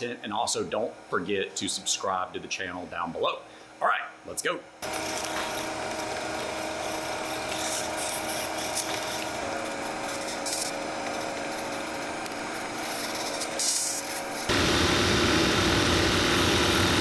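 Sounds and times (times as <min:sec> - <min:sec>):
shoe-repair machine motor hum: 0:04.8 - 0:17.0.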